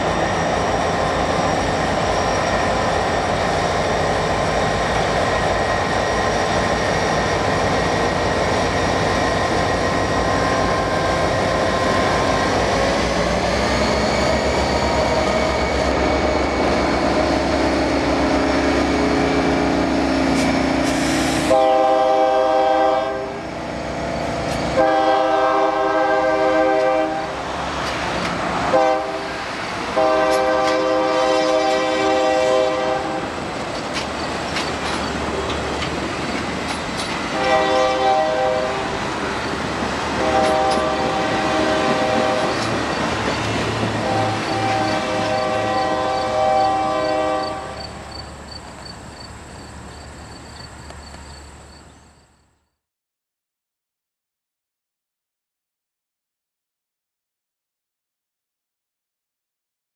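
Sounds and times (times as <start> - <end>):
diesel locomotive engines: 0.0 - 52.7
multi-tone train air horn: 20.8 - 23.4, 24.7 - 27.4, 28.7 - 33.3, 37.3 - 39.0, 40.1 - 42.6, 44.0 - 47.9
wheels clattering on rails: 33.5 - 37.4, 41.8 - 44.0.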